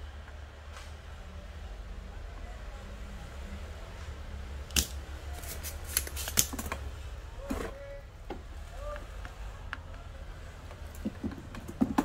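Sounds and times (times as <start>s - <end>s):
desoldering pump snapping: 4.6s - 6.8s.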